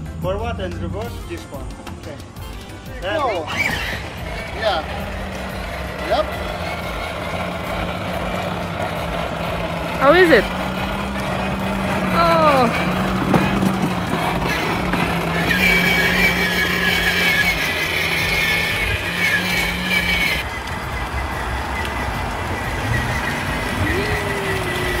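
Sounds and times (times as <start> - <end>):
toy car electric motors humming: 3.4 - 25.0.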